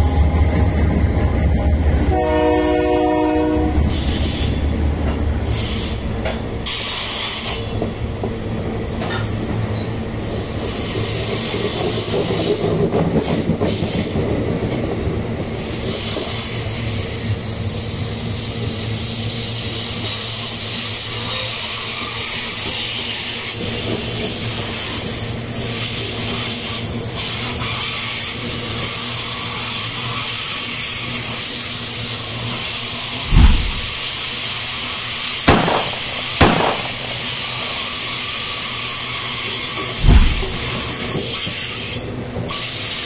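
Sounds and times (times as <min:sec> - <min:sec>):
freight train rumbling: 0:00.0 - 0:43.0
wheels squealing on rails: 0:01.6 - 0:08.0, 0:08.8 - 0:35.4, 0:37.2 - 0:43.0
locomotive horn blast: 0:02.0 - 0:04.0.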